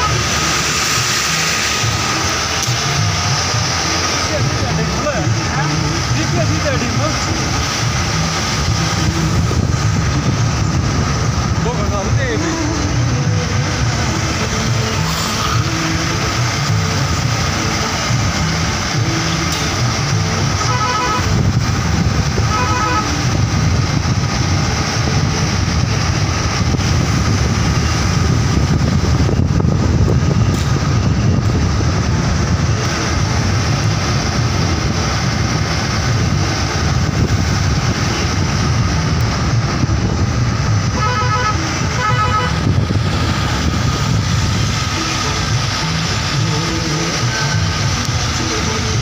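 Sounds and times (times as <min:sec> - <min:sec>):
vehicle engine and road noise: 0:00.0 - 0:49.0
car horn honking: 0:20.6 - 0:21.4, 0:22.4 - 0:23.2, 0:40.9 - 0:42.7.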